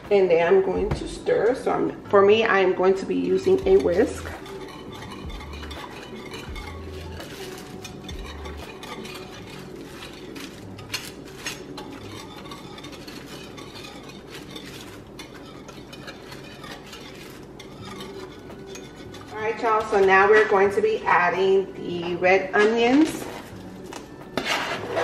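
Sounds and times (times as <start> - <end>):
whisk clinking on pot: 1.4 - 25.0
whisk swishing in liquid: 3.1 - 21.0, 23.2 - 25.0.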